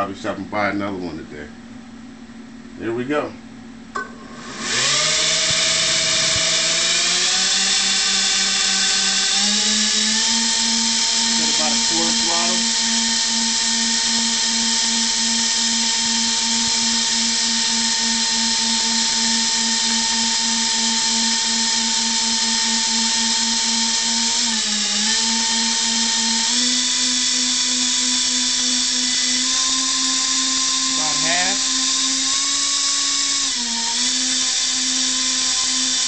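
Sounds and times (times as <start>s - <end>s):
electric ducted fans whining: 0.0s - 20.2s.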